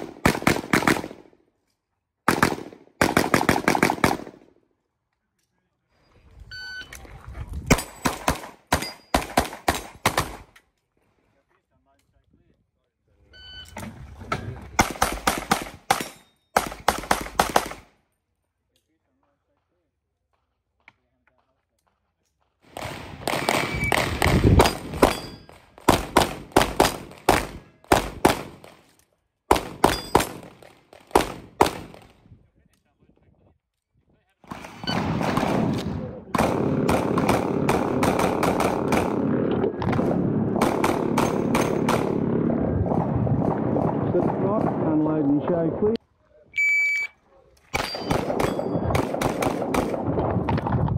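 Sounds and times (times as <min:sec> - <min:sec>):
rapid pistol shots: 0:00.0 - 0:01.2, 0:02.3 - 0:04.4, 0:07.7 - 0:10.5, 0:14.8 - 0:17.9, 0:22.7 - 0:25.2, 0:25.8 - 0:28.8, 0:29.5 - 0:32.1, 0:34.5 - 0:42.3, 0:47.8 - 0:50.0
shot timer beep: 0:46.6 - 0:47.2.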